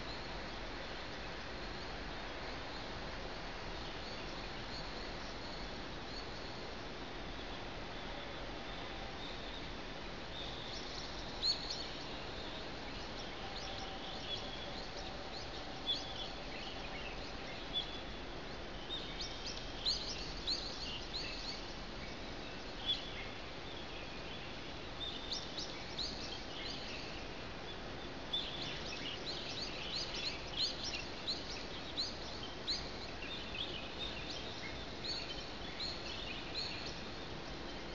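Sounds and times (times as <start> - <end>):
steady background hiss: 0.0 - 37.9
small birds chirping: 10.3 - 37.9.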